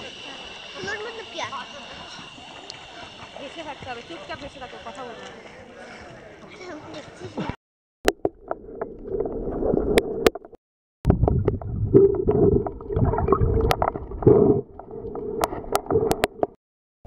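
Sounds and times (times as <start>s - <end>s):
underwater churning and gurgling: 8.1s - 16.6s
sharp underwater clicks: 15.4s - 16.6s.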